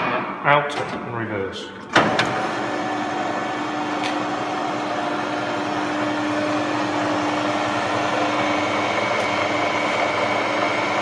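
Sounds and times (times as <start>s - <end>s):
lathe motor hum: 2.0s - 11.0s.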